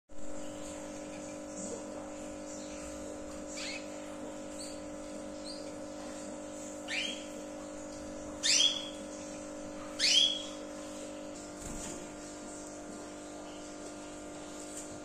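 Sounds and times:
canary whistled calls: 6.9 - 7.3, 8.4 - 9.0, 10.0 - 10.6.

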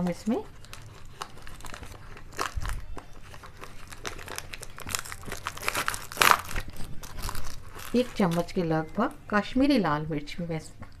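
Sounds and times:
crinkling and rustling: 0.0 - 8.8.

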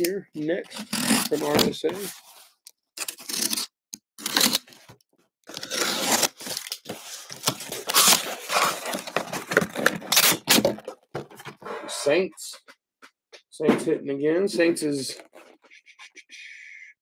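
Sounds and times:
packing tape being cut and torn: 0.7 - 1.5, 3.0 - 4.8, 5.5 - 10.9.

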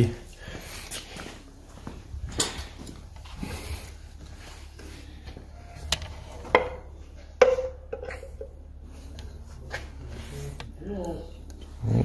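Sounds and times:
metal cover clinking and knocking: 6.4 - 8.6.

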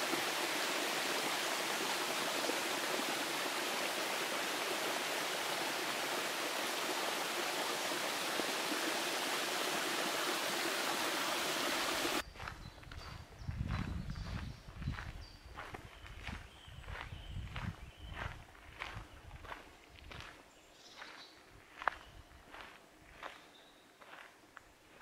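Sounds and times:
stream rushing: 0.0 - 12.2.

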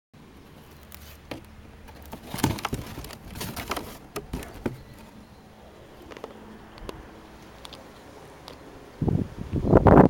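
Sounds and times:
cardboard box rustling: 0.6 - 5.3.

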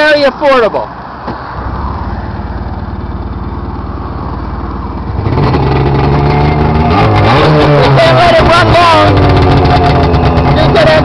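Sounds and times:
jet ski engine idling: 1.6 - 6.8, 8.0 - 11.0.

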